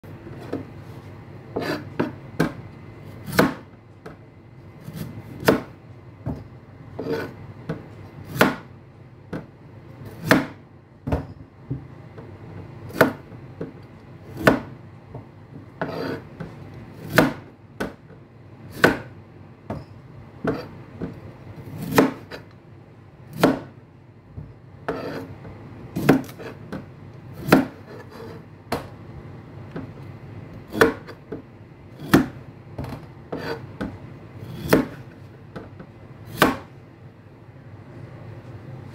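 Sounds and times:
knife chopping on cutting board: 1.6 - 2.6, 3.2 - 3.8, 4.8 - 6.4, 7.0 - 8.7, 10.1 - 11.9, 12.9 - 14.8, 15.6 - 18.0, 18.7 - 19.1, 20.4 - 22.4, 23.3 - 23.8, 24.9 - 25.3, 26.0 - 28.9, 30.7 - 31.4, 32.0 - 35.7, 36.3 - 36.7.

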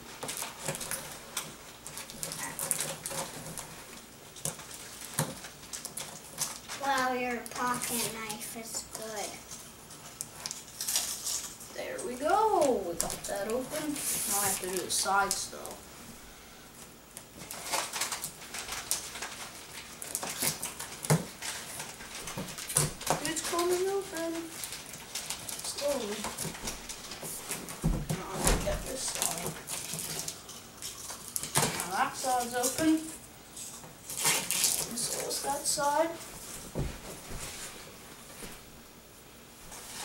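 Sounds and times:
knife slitting packing tape: 34.1 - 34.9.

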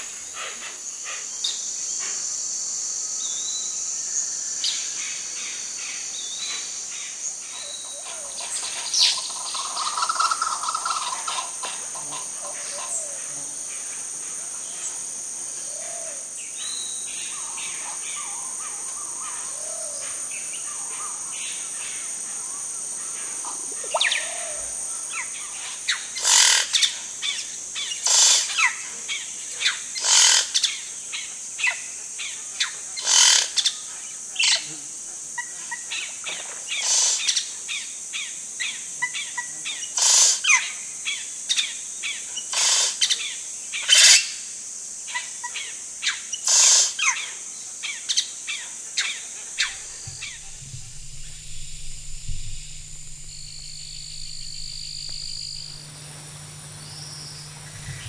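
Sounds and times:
high insect drone: 0.0 - 58.0
birds calling loud sharp notes: 49.6 - 58.0
faint short bird notes: 49.6 - 58.0.

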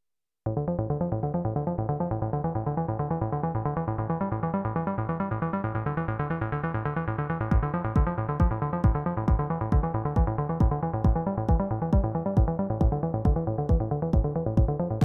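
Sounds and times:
kick drum: 7.5 - 15.0.

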